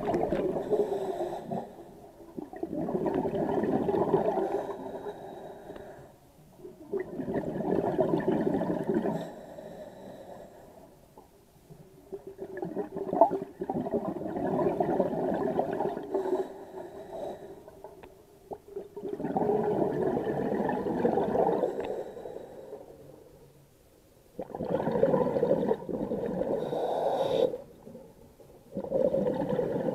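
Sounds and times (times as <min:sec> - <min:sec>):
underwater exhaust bubbles: 0:00.0 - 0:05.0, 0:06.7 - 0:09.5, 0:11.9 - 0:16.4, 0:17.7 - 0:22.1, 0:24.4 - 0:26.9, 0:28.7 - 0:29.9.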